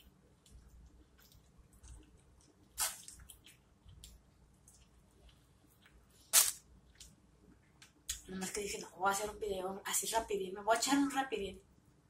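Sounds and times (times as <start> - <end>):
person chewing wetly: 0.0 - 6.1
loud wet smacks: 2.8 - 3.5.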